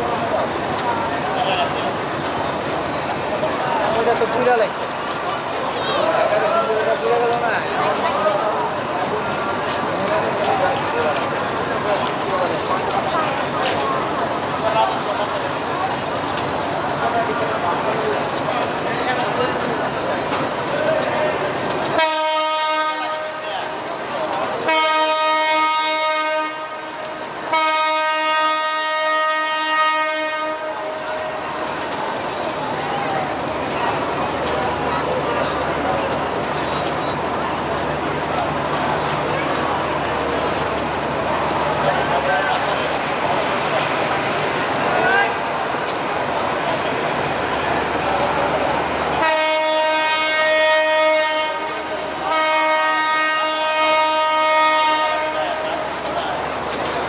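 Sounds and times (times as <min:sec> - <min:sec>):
train rolling on tracks: 0:00.0 - 0:57.0
train horn blast: 0:21.9 - 0:23.8, 0:24.6 - 0:31.2, 0:49.2 - 0:55.6.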